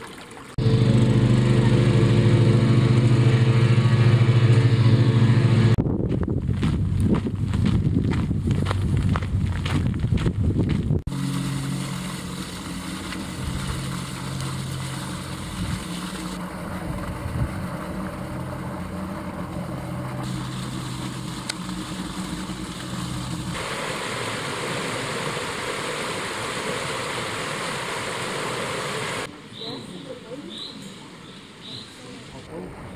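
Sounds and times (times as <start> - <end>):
low engine-like hum: 0.6 - 5.9, 11.1 - 25.4
stream tumbling over rocks: 11.1 - 29.3.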